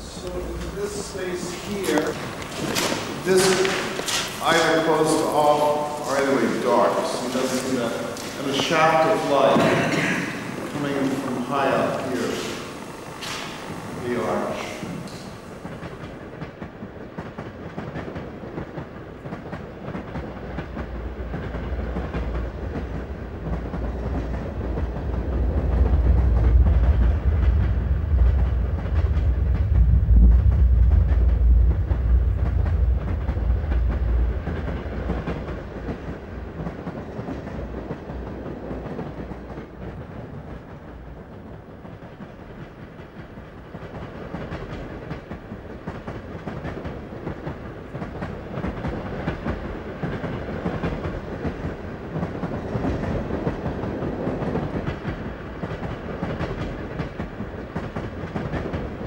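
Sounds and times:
low background noise: 0.0s - 17.1s
deep low rumble: 25.2s - 35.4s.

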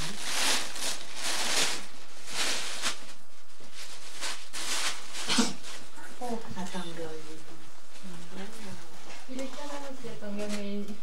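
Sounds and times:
blanket rustling: 0.0s - 5.9s.

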